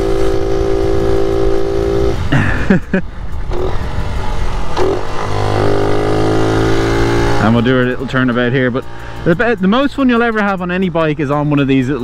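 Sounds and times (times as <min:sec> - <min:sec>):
motorcycle engine at high revs: 0:00.0 - 0:02.6, 0:03.4 - 0:09.8.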